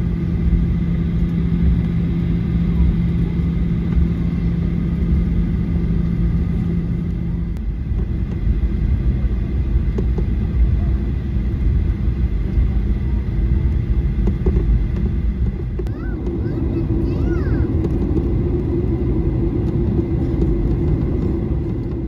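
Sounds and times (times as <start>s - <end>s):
aircraft cabin low rumble: 0.0s - 22.0s
low steady hum: 0.0s - 22.0s.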